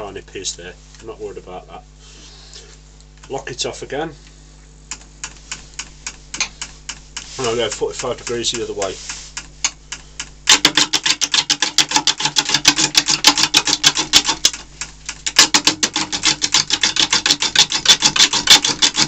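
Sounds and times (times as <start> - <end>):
gouge clattering on wood: 5.3 - 19.0.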